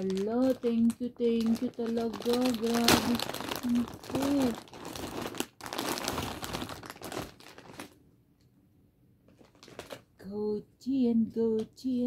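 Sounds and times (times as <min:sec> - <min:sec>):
paper gift bag rustling: 0:00.0 - 0:08.0, 0:09.3 - 0:10.0.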